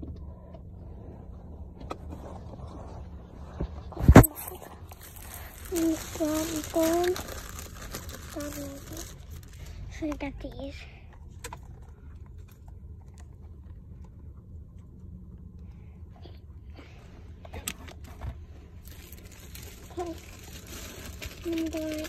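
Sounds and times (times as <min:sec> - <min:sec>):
steady low hum: 0:00.0 - 0:22.0
plastic packaging crinkling: 0:04.2 - 0:09.8, 0:18.8 - 0:22.0
plastic packaging clicks: 0:04.9 - 0:09.6, 0:18.9 - 0:22.0.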